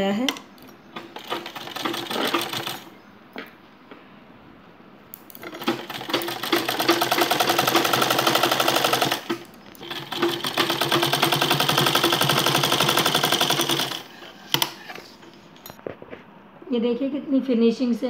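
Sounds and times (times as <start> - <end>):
sewing machine stitching: 0.9 - 2.9, 5.3 - 14.9.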